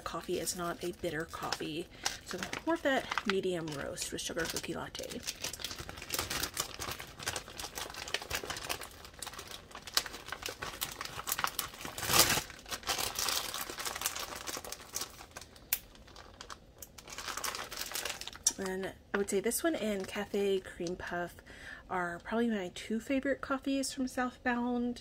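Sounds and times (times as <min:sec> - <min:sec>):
packaging crinkling: 0:00.0 - 0:18.7.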